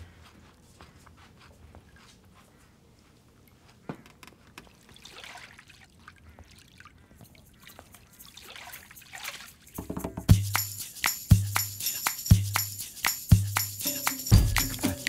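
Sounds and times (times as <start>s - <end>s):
water trickling in a glass bowl: 7.2s - 9.8s
music with deep thumps: 14.3s - 15.0s.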